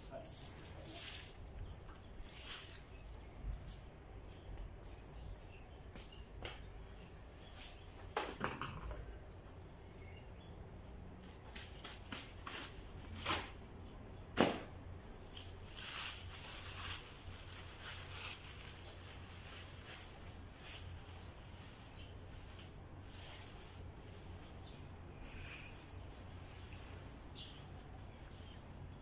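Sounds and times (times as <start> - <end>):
scraping rustles: 0.1 - 9.1, 10.8 - 13.9, 14.5 - 29.0.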